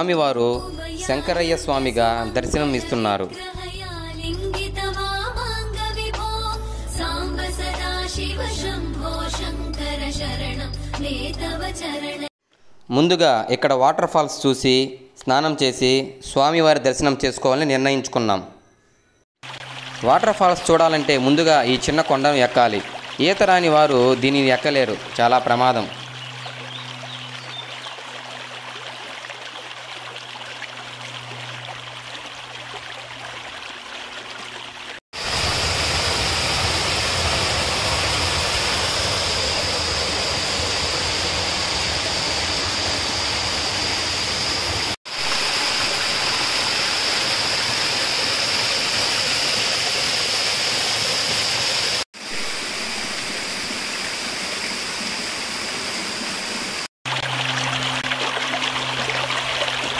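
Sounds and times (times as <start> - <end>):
stream and waterfall rushing: 19.4 - 59.9.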